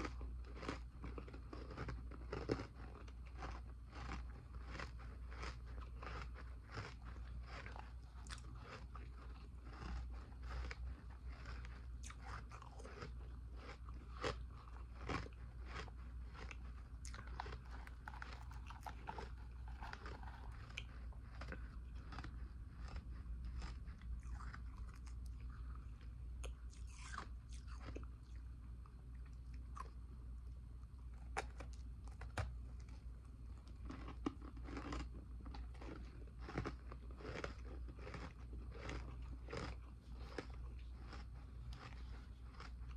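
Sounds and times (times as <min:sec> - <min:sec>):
person chewing ice crunches: 0:00.0 - 0:30.0, 0:31.0 - 0:42.9.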